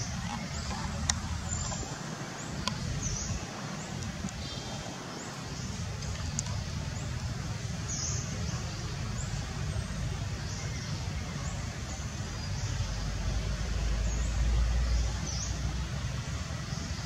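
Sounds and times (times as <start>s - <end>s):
faint sharp clicks: 2.6s - 2.9s, 6.0s - 7.4s.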